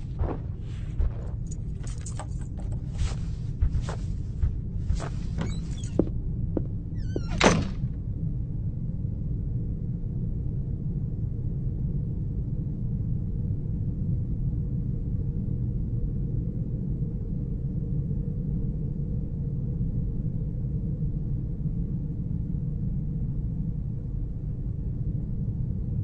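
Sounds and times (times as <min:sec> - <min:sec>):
shoes scraping on mat: 0:00.0 - 0:06.1
low rumble of room tone: 0:00.0 - 0:26.0
door shutting with thud: 0:04.9 - 0:06.1, 0:07.0 - 0:08.0
door creaking: 0:04.9 - 0:08.0.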